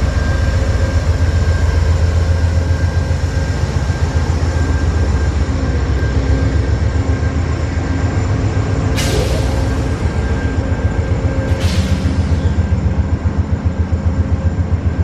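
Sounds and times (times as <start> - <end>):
locomotive engine rumble: 0.0 - 15.0.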